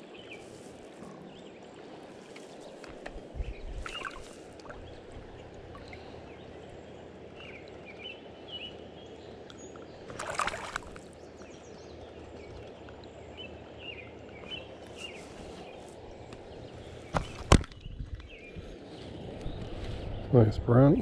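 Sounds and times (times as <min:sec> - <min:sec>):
river water flowing and lapping: 0:00.0 - 0:20.4
fish splashing at surface: 0:10.1 - 0:11.1.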